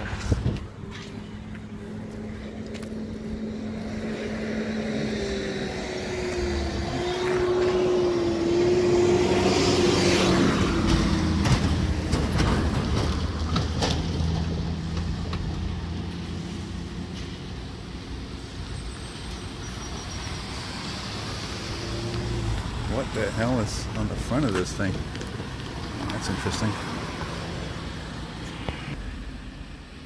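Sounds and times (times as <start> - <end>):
vehicle engine drone: 0.0 - 30.0.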